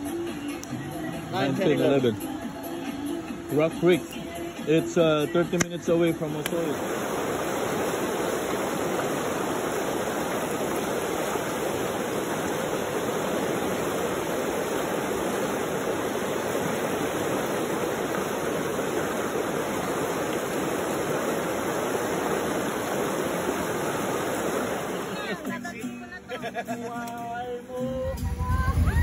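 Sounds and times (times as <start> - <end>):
river rushing over rocks: 0.0 - 25.6.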